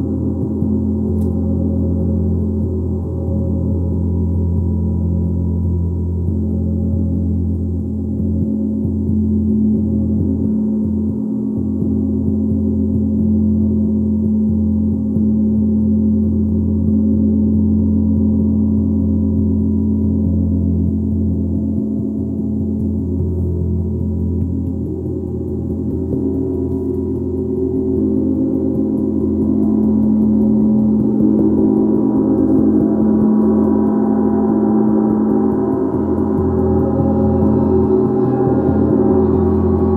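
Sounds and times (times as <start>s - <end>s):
gong ringing: 30.6s - 39.9s.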